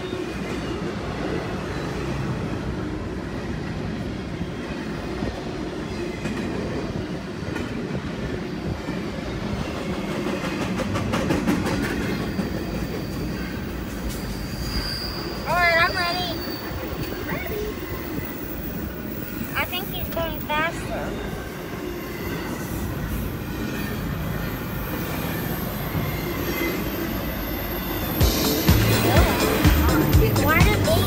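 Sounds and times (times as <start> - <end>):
freight train wheels rumbling: 0.0 - 31.0
faint wheel squeal: 11.9 - 19.6, 20.9 - 28.2.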